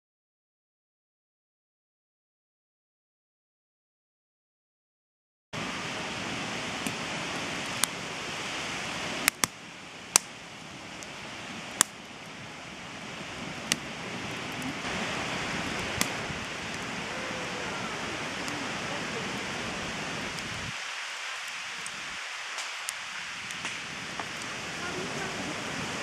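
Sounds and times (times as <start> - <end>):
campfire crackling and popping: 5.6 - 26.0
fire hiss: 5.6 - 26.0.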